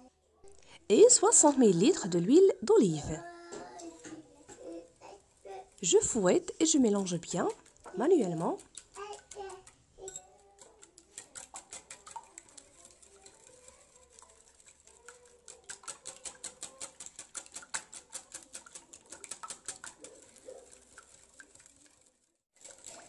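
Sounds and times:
whisk clicking against bowl: 0:05.8 - 0:23.0.

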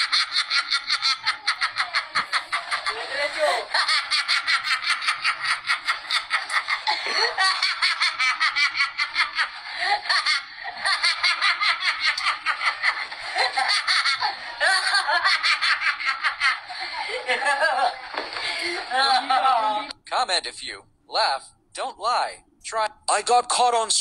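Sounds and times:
man cackling evil laugh: 0:00.0 - 0:18.0.

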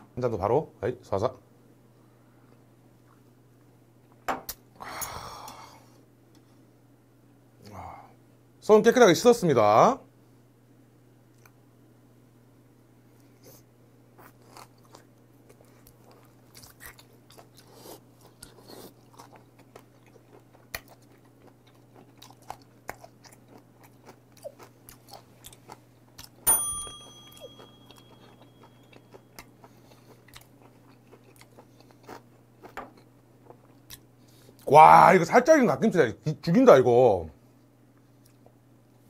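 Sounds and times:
steady low hum: 0:00.0 - 0:39.0
chewing meat with mouth clicks: 0:14.2 - 0:26.4, 0:27.3 - 0:34.7
sharp metallic clink: 0:26.5 - 0:28.1.

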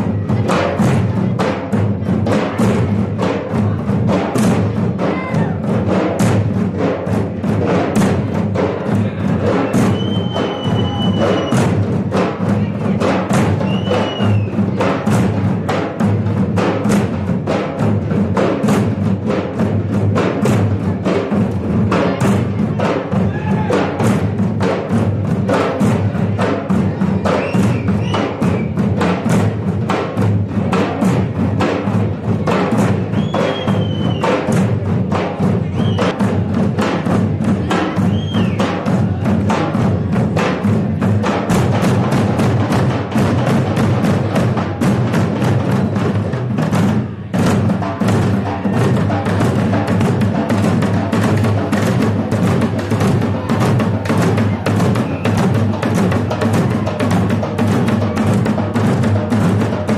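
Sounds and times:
massed barrel drums: 0:00.0 - 0:59.9.

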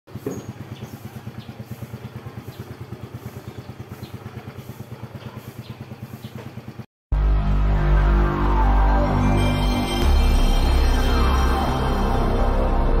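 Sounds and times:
scooter engine idling: 0:00.1 - 0:08.2.

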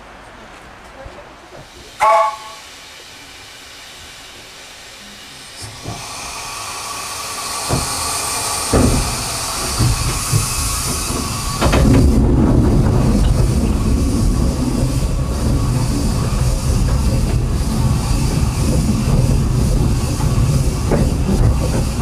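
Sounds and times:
train rumble: 0:00.0 - 0:22.0
steam hissing: 0:01.6 - 0:22.0
steam locomotive whistle: 0:02.0 - 0:02.7
wheels and couplings knocking: 0:07.6 - 0:22.0.

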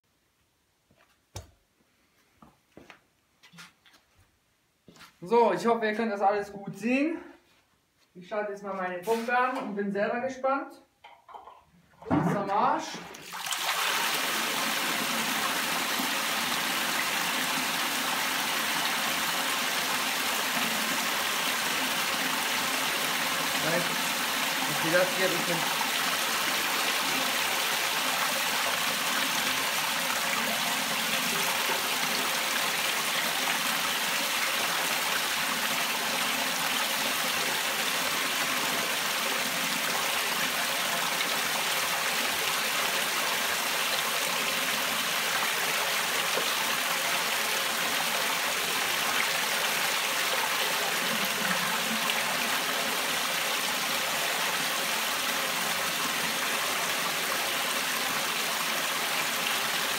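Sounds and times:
water jetting and splashing: 0:13.1 - 0:59.9.

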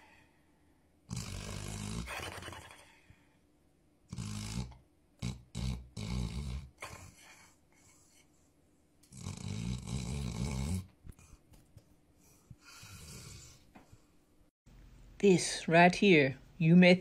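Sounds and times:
quiet breaths: 0:00.0 - 0:01.0, 0:02.6 - 0:03.5, 0:06.6 - 0:09.0, 0:10.8 - 0:14.5
dog snoring: 0:01.1 - 0:02.9, 0:04.1 - 0:08.2, 0:09.0 - 0:11.2, 0:12.6 - 0:13.6
dog snorting: 0:01.1 - 0:02.9, 0:04.1 - 0:08.3, 0:09.0 - 0:11.4.

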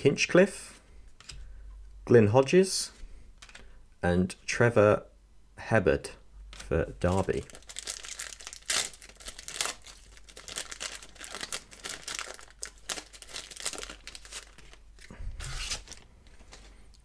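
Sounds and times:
foil wrapper crinkling and tearing: 0:07.0 - 0:16.6.

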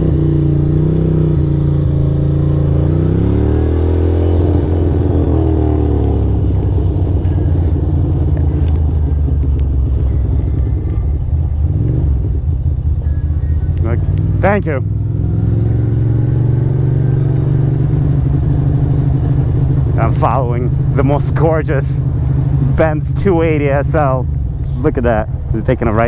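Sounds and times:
motorcycle engine pulling away: 0:00.0 - 0:13.0.

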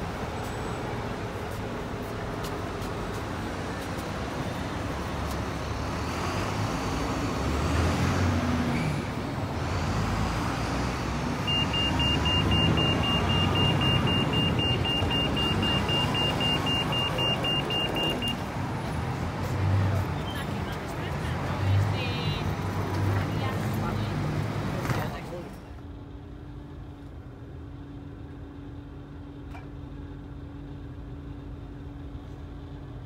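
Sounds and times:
vehicles passing on road: 0:00.0 - 0:33.0.

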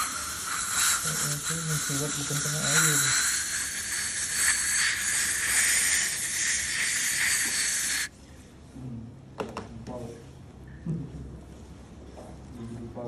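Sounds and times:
steady airy hiss: 0:00.0 - 0:08.1.

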